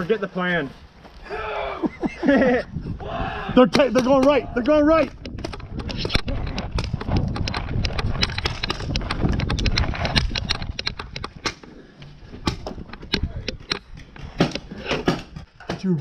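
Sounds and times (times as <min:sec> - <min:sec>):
gear rattling: 0:04.2 - 0:15.6.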